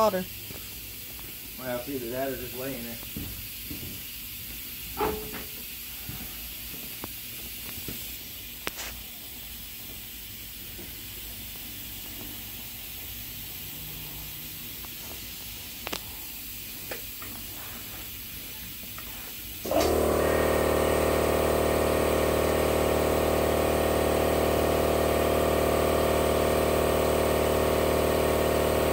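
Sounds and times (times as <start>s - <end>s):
steady hiss: 0.0s - 19.7s.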